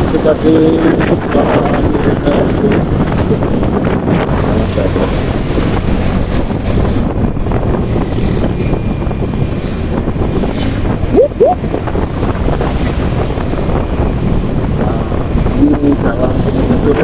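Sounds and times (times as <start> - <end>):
engine and road rumble: 0.0 - 17.0
wind buffeting microphone: 0.0 - 17.0
short rising tones: 11.1 - 11.6.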